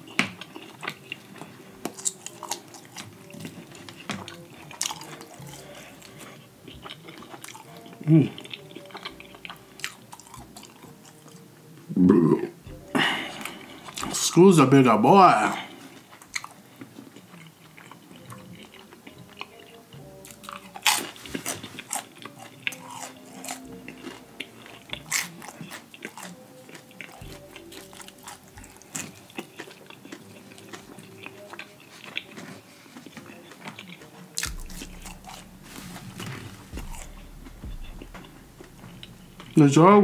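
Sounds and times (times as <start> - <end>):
crunchy bites and chewing: 0.0 - 11.4, 20.2 - 39.7
moist mouth smacking: 32.0 - 39.6.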